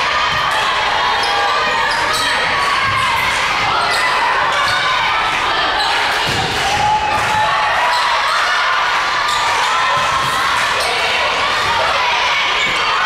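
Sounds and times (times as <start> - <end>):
echoing hall noise: 0.0 - 13.0
players calling: 0.0 - 13.0
shoe squeaks: 1.2 - 2.8.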